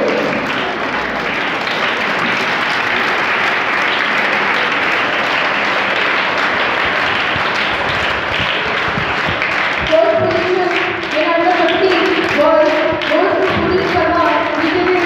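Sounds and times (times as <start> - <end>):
children applauding: 0.0 - 15.0.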